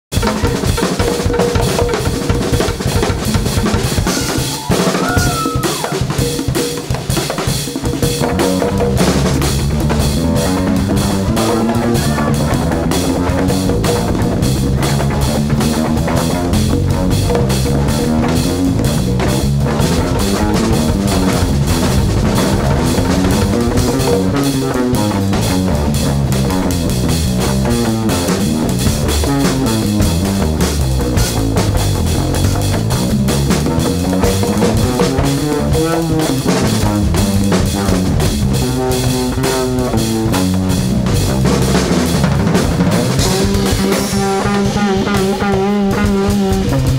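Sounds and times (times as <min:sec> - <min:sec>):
drum kit: 0:00.0 - 0:46.9
electric bass line: 0:00.0 - 0:46.9
congas: 0:00.1 - 0:46.9.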